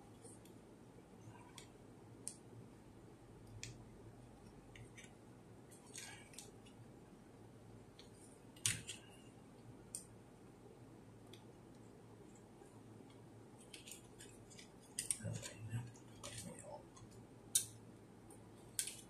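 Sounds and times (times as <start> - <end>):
faint plastic clicks and taps: 3.4 - 3.8.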